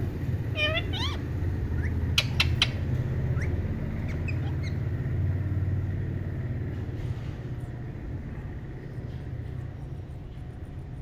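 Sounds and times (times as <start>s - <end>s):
steady low hum: 0.0s - 11.0s
parakeets chirping: 0.4s - 5.2s.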